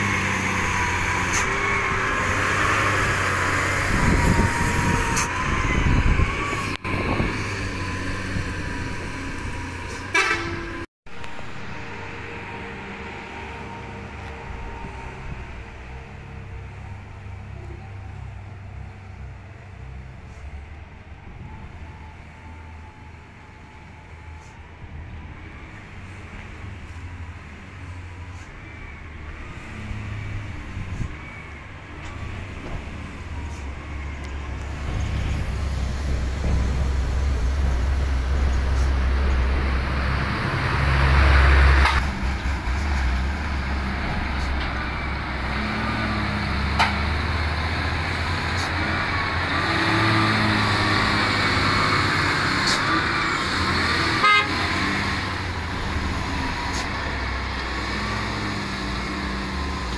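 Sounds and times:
truck diesel engines: 0.0 - 59.9
truck horn: 9.9 - 14.6, 52.6 - 55.3.

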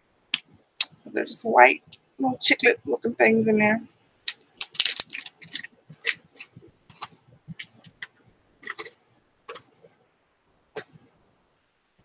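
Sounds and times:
gum package crinkling: 4.3 - 9.7.

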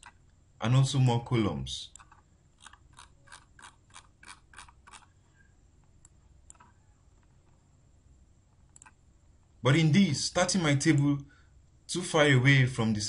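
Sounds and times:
computer mouse clicking: 1.9 - 5.1, 5.8 - 7.6, 8.6 - 9.0.

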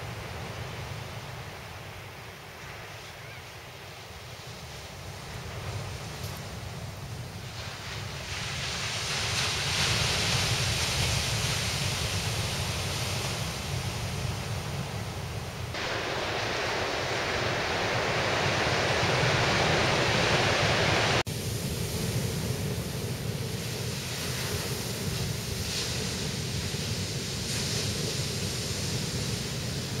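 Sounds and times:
ocean surf: 0.0 - 30.0
wind: 0.0 - 30.0.

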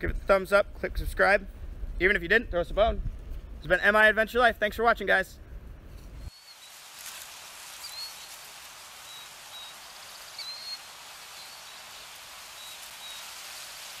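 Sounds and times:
steady outdoor hiss: 0.0 - 14.0
high bird chirps: 6.3 - 6.8, 7.7 - 13.8.

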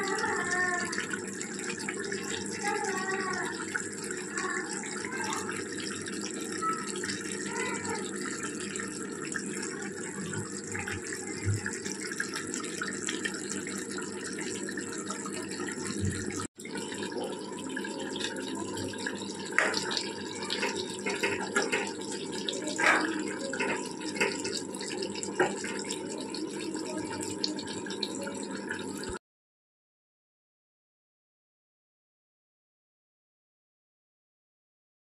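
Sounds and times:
curry bubbling and hissing: 0.0 - 29.2
faint voices: 2.0 - 16.4, 17.0 - 29.1.

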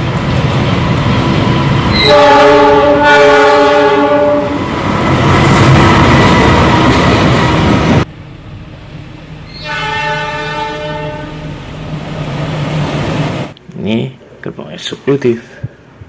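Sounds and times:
train passing rumble: 0.0 - 13.6
diesel locomotive horn chord: 1.9 - 4.6, 9.6 - 11.5
low engine tone: 8.1 - 12.3.

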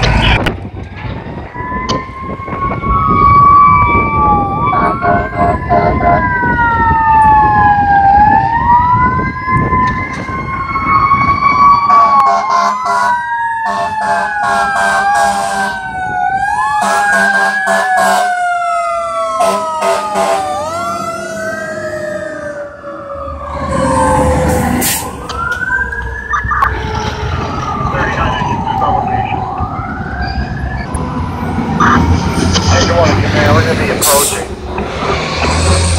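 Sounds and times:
heavy vehicles rumbling past: 0.0 - 13.2, 13.8 - 35.9
siren tone falling in pitch: 0.0 - 33.2
electronic siren wailing: 0.0 - 35.9
truck horn blasts: 4.8 - 6.2, 13.7 - 15.8.

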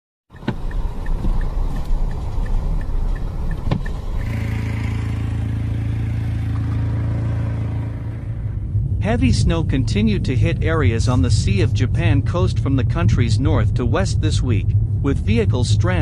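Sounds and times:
car engine: 0.3 - 16.0
road noise from inside car: 0.3 - 16.0
light regular ticking: 0.4 - 5.1.

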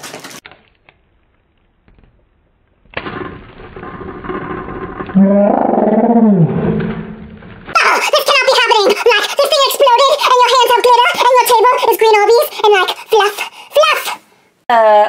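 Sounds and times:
deep slowed voice: 4.5 - 7.4.

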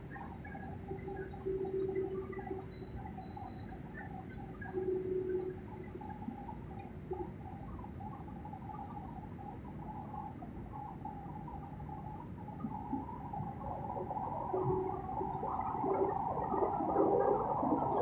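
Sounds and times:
airliner engine and airflow rumble: 11.4 - 18.0.

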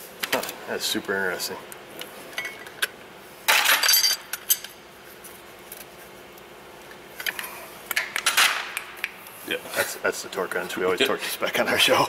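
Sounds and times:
metal tools clattering: 3.5 - 4.7.

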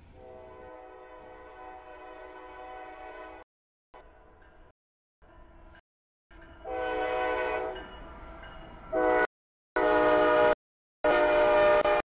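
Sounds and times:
locomotive air horn blasts: 0.1 - 3.4, 6.6 - 7.9, 8.9 - 12.0.

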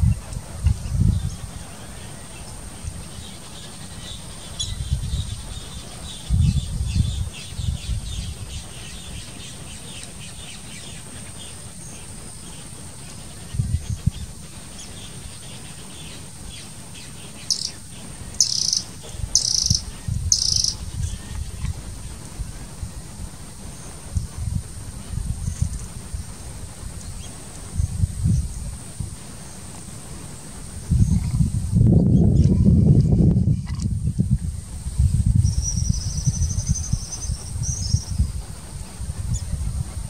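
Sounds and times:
birds chirping: 1.1 - 21.4
high insect drone: 7.3 - 31.8
short bright bird calls: 17.5 - 17.8, 18.4 - 20.8.

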